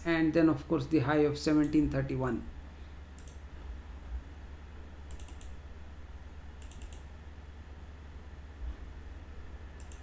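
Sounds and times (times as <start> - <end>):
low electrical hum: 0.0 - 10.0
keyboard keystrokes: 5.1 - 5.6, 6.6 - 7.0.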